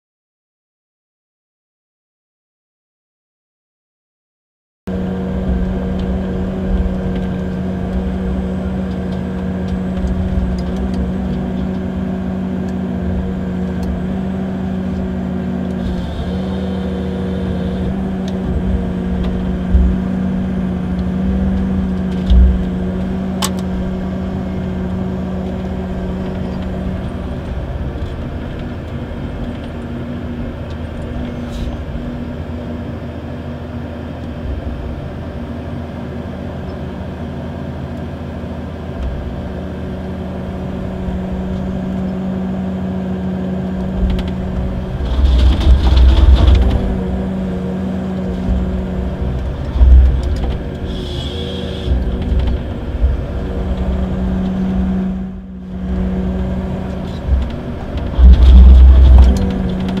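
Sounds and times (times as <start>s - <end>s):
harvester engine droning: 4.9s - 60.0s
low thuds and knocks: 18.4s - 20.4s, 21.3s - 23.1s, 48.4s - 50.7s.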